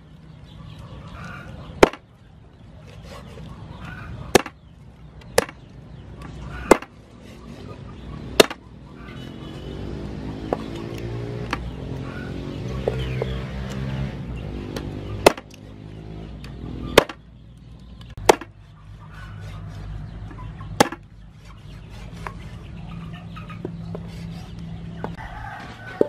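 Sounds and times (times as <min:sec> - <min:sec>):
cleaver chopping on wooden block: 0:01.8 - 0:02.0, 0:04.3 - 0:04.6, 0:05.4 - 0:05.6, 0:06.6 - 0:07.0, 0:08.4 - 0:08.6, 0:14.8 - 0:15.6, 0:17.0 - 0:17.2, 0:18.2 - 0:18.6, 0:20.8 - 0:21.0.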